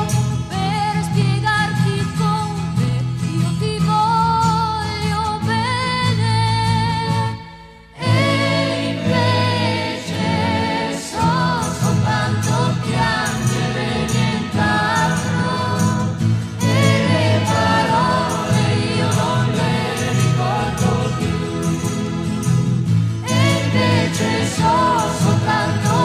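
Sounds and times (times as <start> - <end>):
orchestral pop music: 8.0 - 26.0
voices singing melody: 8.0 - 26.0
steady percussion beat: 11.6 - 26.0.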